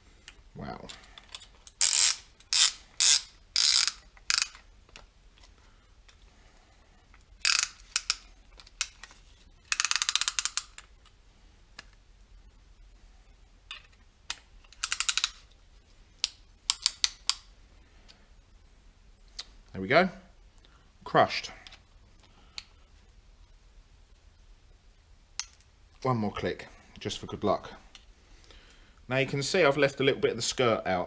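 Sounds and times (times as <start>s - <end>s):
ratchet clicks: 1.7s - 4.6s, 7.4s - 8.2s, 9.7s - 10.9s, 14.7s - 15.4s.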